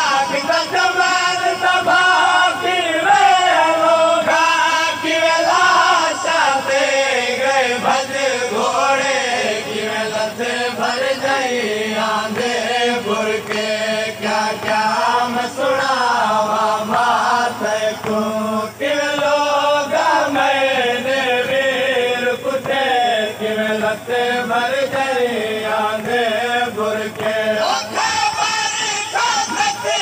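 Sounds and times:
men chanting a lament: 0.0 - 30.0.

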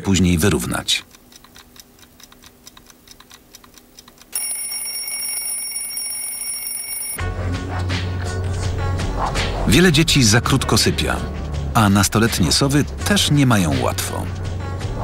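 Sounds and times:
clock ticking: 0.4 - 5.3
alarm clock ringing: 4.3 - 7.2.

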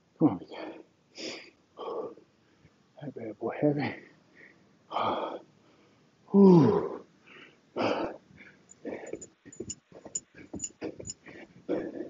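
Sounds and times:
man groaning: 6.3 - 6.9.

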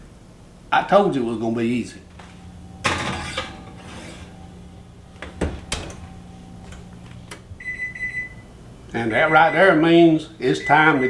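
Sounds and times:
oven door clacks: 2.1 - 7.6
oven timer high beep: 2.2 - 11.0.

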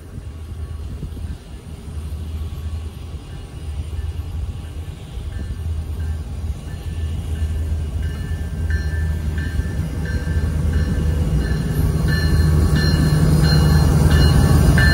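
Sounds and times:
diesel locomotive engine drone: 0.0 - 14.9
locomotive bell ringing: 4.8 - 14.9.

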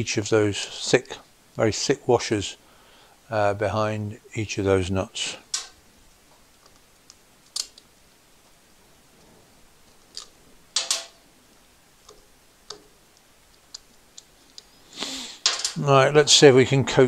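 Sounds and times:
small metallic clicks and clinks: 10.2 - 11.2.

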